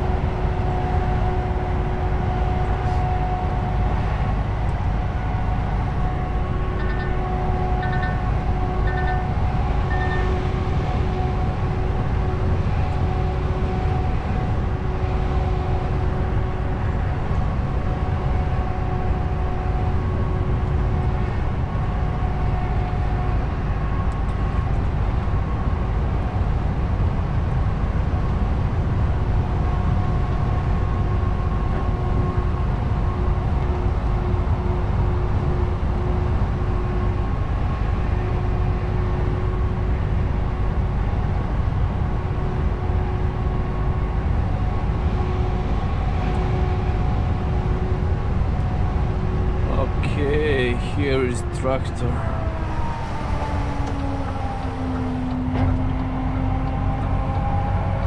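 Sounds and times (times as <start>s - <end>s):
steady whine: 0.0s - 26.5s
diesel truck engine: 0.0s - 58.0s
short high beeps: 9.9s - 10.3s.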